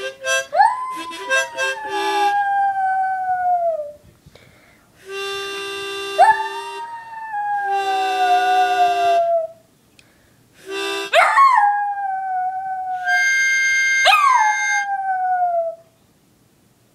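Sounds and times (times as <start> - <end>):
harmonica playing held chords: 0.0 - 2.3, 5.0 - 6.9, 7.7 - 9.3, 10.6 - 11.2, 13.1 - 14.0
dog howling: 0.4 - 4.0, 6.2 - 9.6, 11.2 - 15.8.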